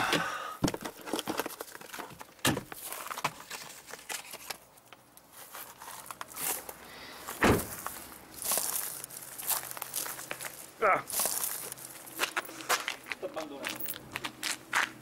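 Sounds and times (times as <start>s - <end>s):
hand rummaging and rustling: 0.7s - 6.8s, 7.7s - 13.1s.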